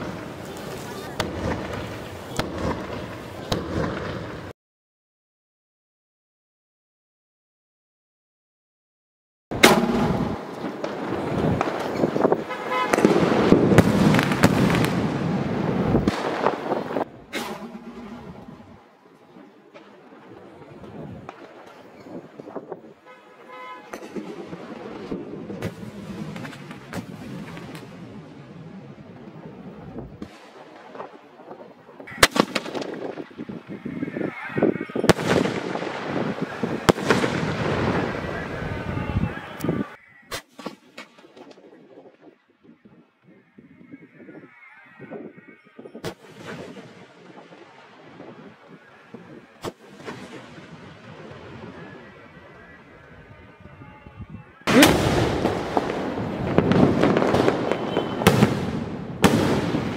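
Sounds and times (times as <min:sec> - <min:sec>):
firework crackling: 0:00.0 - 0:04.5, 0:09.5 - 0:23.0, 0:24.0 - 0:39.6, 0:46.1 - 0:53.7, 0:54.7 - 0:59.9
firework loud bangs: 0:00.0 - 0:04.5, 0:09.5 - 0:28.4, 0:29.5 - 0:34.0, 0:34.8 - 0:39.4, 0:54.6 - 0:59.9
firework shells bursting bangs: 0:09.5 - 0:18.8, 0:54.7 - 0:59.9.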